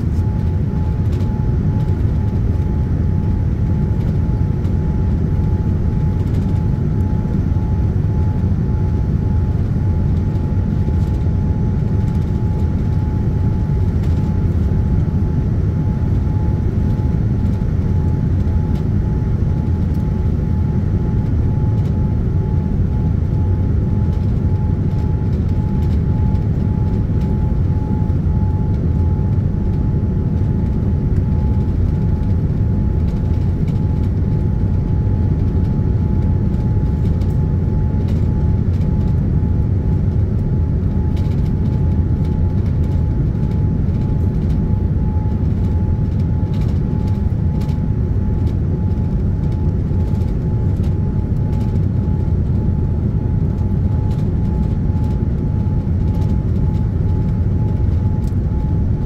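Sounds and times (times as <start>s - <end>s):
aircraft cabin rumble: 0.0s - 59.0s
steady hum: 0.0s - 59.0s.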